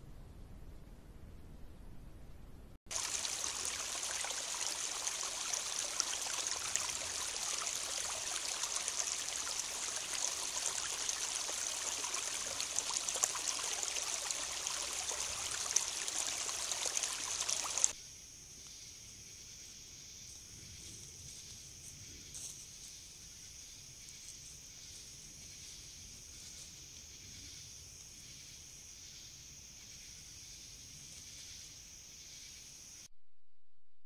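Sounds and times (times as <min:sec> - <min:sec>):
stream running over rocks: 0:02.9 - 0:18.0.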